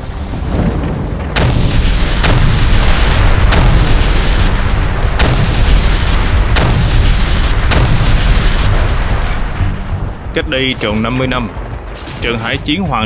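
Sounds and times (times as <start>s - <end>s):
heavy rumble: 0.0s - 13.0s
gunfire blasts: 1.2s - 9.7s.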